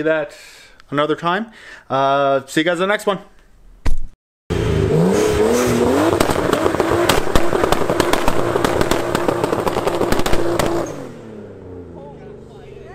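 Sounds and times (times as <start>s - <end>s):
car engine revving high: 4.5s - 12.5s
exhaust crackling pops: 5.1s - 11.2s.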